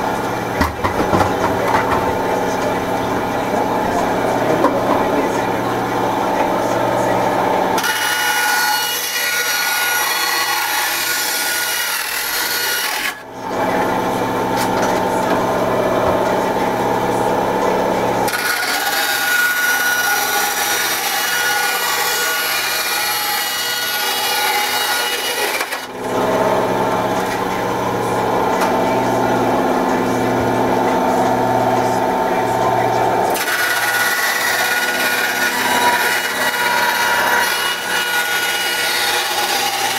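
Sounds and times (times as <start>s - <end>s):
motor hum: 0.0s - 39.9s
bandsaw blade rasping through plastic: 7.8s - 13.2s, 18.3s - 25.9s, 33.3s - 39.9s.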